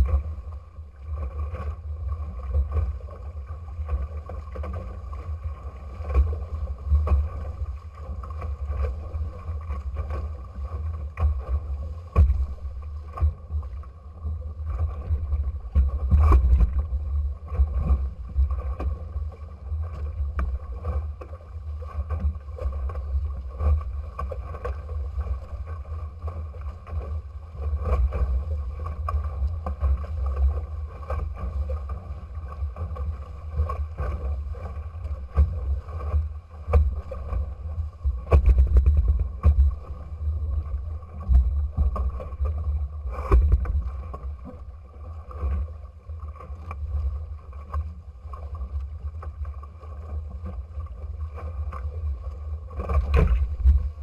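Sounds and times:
water rushing along boat hulls: 0:00.0 - 0:54.0
knocks and splashes: 0:11.2 - 0:13.7, 0:14.7 - 0:19.0, 0:35.3 - 0:40.0, 0:43.2 - 0:44.3, 0:52.8 - 0:54.0
low rumble: 0:32.7 - 0:47.5, 0:50.4 - 0:54.0.

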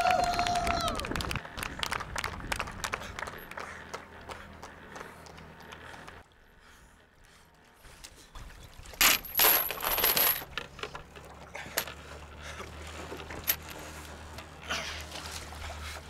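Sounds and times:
metal padlocks clinking and rattling: 0:09.0 - 0:12.0.

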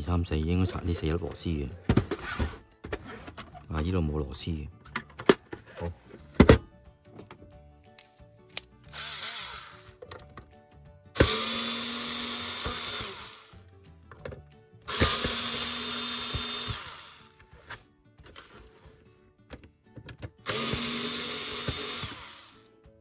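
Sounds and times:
cordless drill running: 0:08.9 - 0:10.0, 0:11.2 - 0:13.5, 0:14.9 - 0:17.4, 0:20.4 - 0:22.7.

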